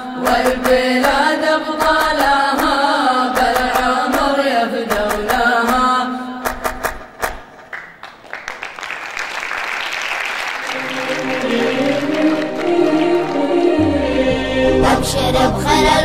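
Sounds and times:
rhythmic handclaps: 0.2s - 14.0s
applause: 7.6s - 13.5s.

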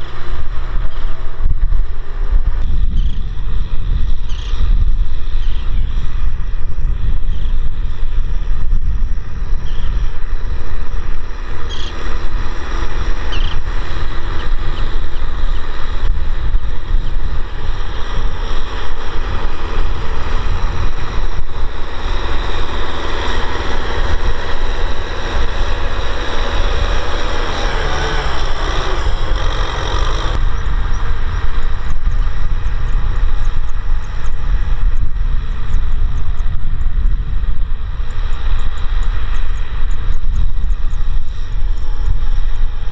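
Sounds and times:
tractor diesel engine rumbling: 10.2s - 33.9s.

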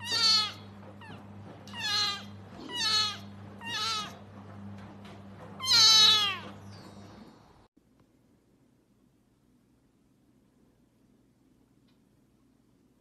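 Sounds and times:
kitten meowing: 0.0s - 1.2s, 1.8s - 4.2s, 5.6s - 6.5s.

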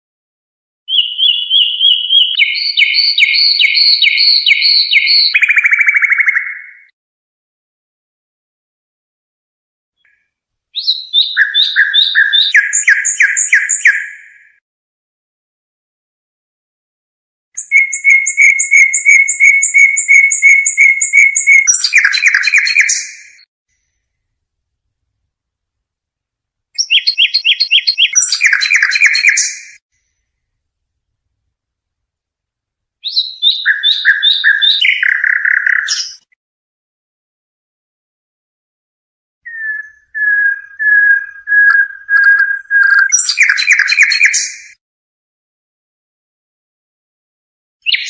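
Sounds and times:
songbird singing short notes: 0.9s - 7.0s, 10.0s - 14.6s, 17.6s - 23.5s, 26.8s - 29.8s, 33.0s - 36.3s, 39.4s - 44.8s.

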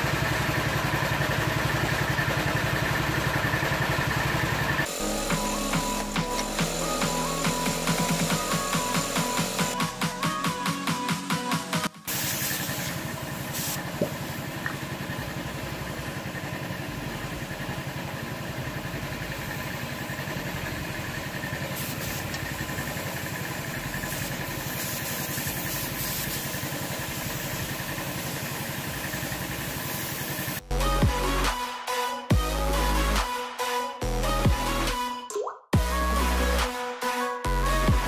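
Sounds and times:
air compressor motor running: 0.0s - 10.4s, 12.1s - 31.5s
spray gun hissing: 4.9s - 9.8s, 12.1s - 14.4s, 21.6s - 30.6s.

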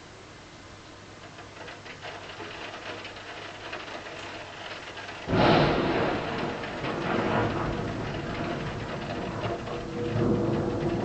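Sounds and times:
rain pattering: 0.5s - 11.0s
loud low rumble: 5.3s - 11.0s.

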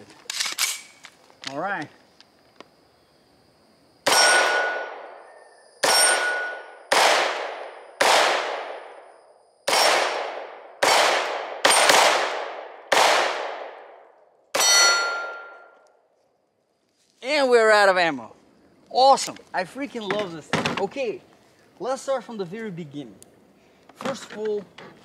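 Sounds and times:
gunshots echoing: 4.0s - 5.2s, 5.8s - 9.1s, 9.7s - 15.7s
metal target ringing: 4.1s - 5.1s, 5.8s - 6.9s, 14.6s - 15.8s.

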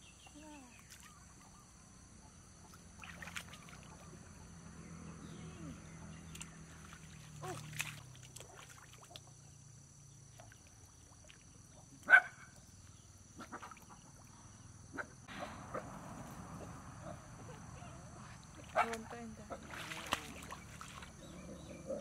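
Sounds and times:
hands splashing in water: 2.7s - 4.1s, 6.3s - 9.4s, 18.4s - 21.2s
dog barking: 12.1s - 12.5s.

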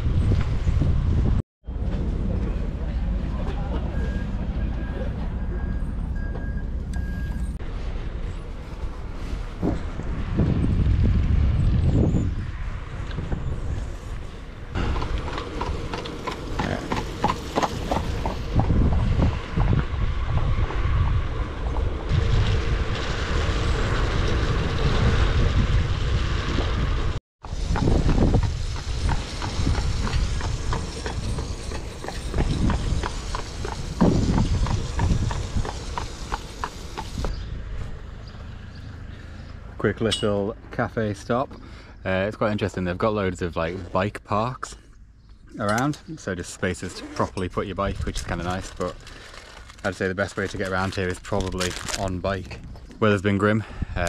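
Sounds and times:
wind rumbling on microphone: 0.0s - 3.3s, 7.1s - 39.2s, 47.5s - 54.0s.

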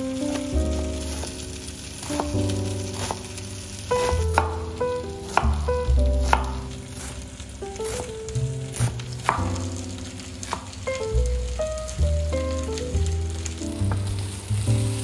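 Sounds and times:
soft background music: 0.0s - 15.0s
knife chopping onion on board: 2.0s - 3.3s, 4.0s - 7.2s, 7.8s - 8.1s, 8.7s - 9.7s, 10.4s - 10.8s.

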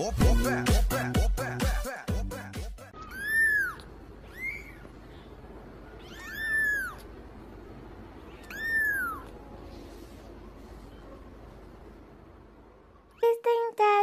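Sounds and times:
kitten meowing: 3.0s - 4.9s, 6.0s - 7.1s, 8.2s - 9.4s.

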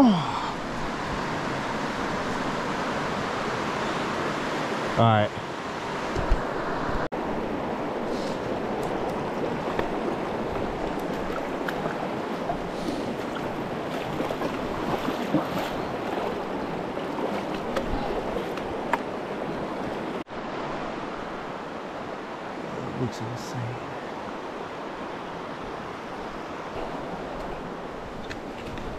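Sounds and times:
river water rushing: 0.0s - 28.9s.

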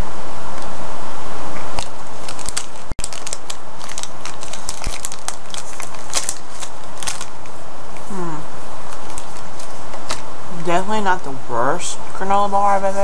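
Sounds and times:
plastic wrapper crinkling: 1.7s - 8.1s, 8.9s - 10.2s.

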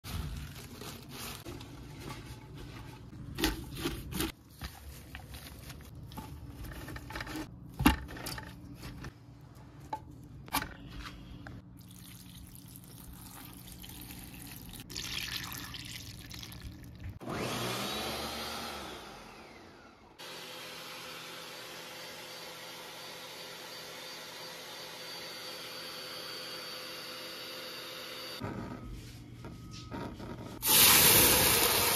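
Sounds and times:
leaves rustling: 0.1s - 2.8s
blender running: 17.2s - 28.4s, 30.6s - 31.9s.

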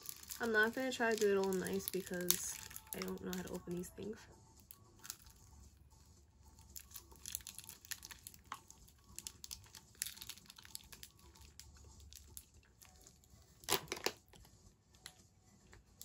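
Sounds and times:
candy crunching: 0.0s - 3.9s, 4.7s - 5.6s, 6.6s - 14.3s
candy wrapper crinkling: 0.0s - 4.0s, 4.6s - 5.6s, 6.6s - 14.4s.

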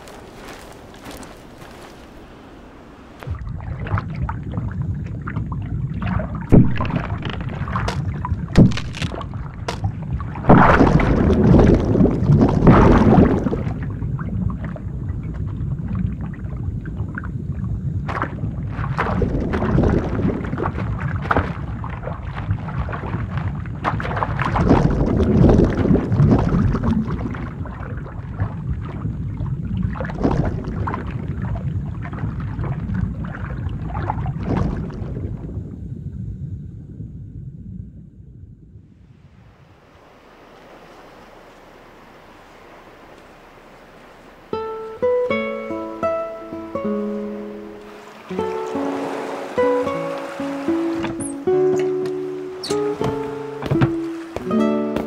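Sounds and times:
muffled underwater rumble: 2.9s - 54.3s
crash into water: 6.0s - 14.0s, 18.0s - 28.6s
ice cracking: 6.5s - 9.9s.

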